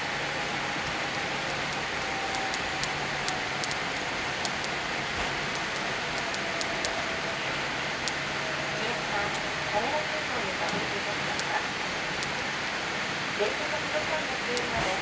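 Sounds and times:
rush of engines and air: 0:00.0 - 0:09.8.

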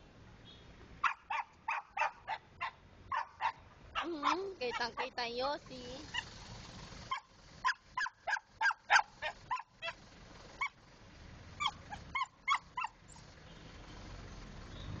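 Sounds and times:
small dog yapping: 0:01.0 - 0:05.2, 0:06.0 - 0:06.3, 0:07.1 - 0:10.0, 0:10.6 - 0:10.8, 0:11.6 - 0:13.0.

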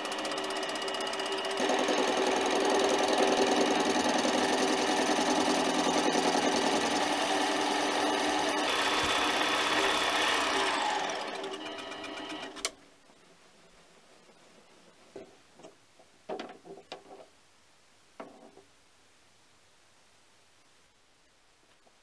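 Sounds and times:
lathe whirring: 0:00.0 - 0:12.8.

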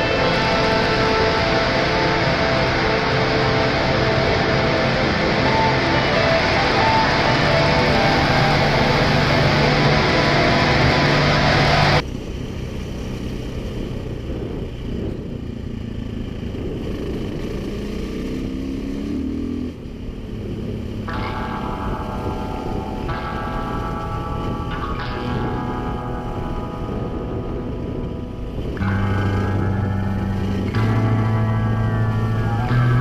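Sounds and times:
background music: 0:00.0 - 0:12.0, 0:21.1 - 0:33.0
motorcycle engine accelerating: 0:00.0 - 0:33.0.

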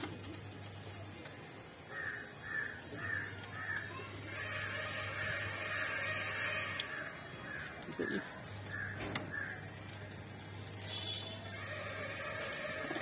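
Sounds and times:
crow cawing: 0:01.9 - 0:09.7.

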